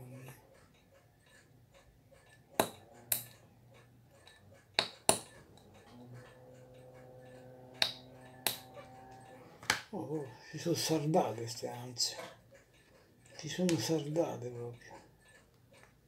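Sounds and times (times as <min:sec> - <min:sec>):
metal tool clicking on watch: 0:00.6 - 0:09.1.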